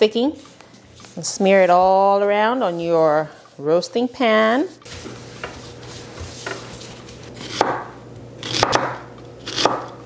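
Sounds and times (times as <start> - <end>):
knife slicing onion: 7.2 - 10.0.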